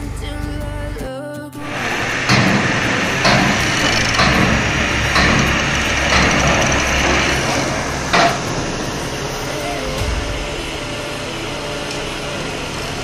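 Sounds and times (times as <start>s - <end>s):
sharp metal knocks: 1.6s - 9.2s
engine running steadily: 1.6s - 13.0s.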